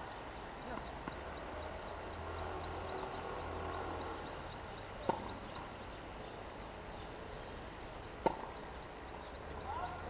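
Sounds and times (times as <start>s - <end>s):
tennis ball pop: 5.0s - 5.4s, 8.2s - 8.5s.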